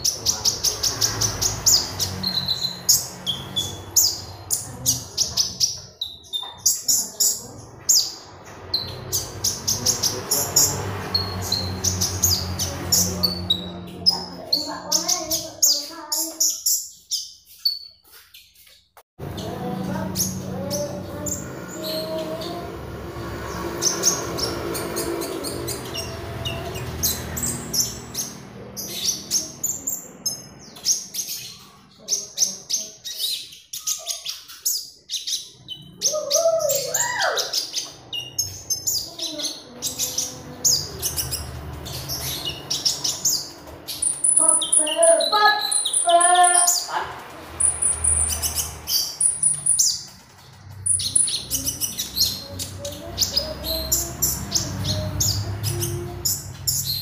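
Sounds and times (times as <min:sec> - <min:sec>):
bird chirping and twittering: 0:00.0 - 0:57.0
bird whistled phrases: 0:35.8 - 0:38.4.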